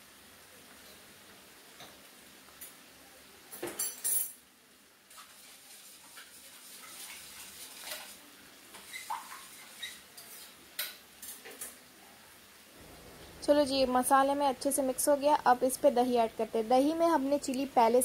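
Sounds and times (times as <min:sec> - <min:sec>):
metal utensils clattering on cookware: 0:03.6 - 0:04.4.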